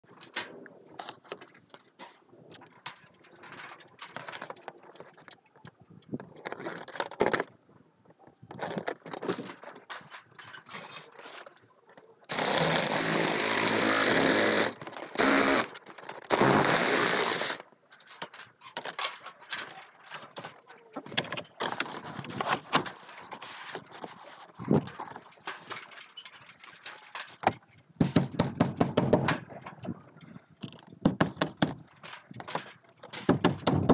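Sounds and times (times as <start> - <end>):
angle grinder cutting siding: 12.3 - 17.6.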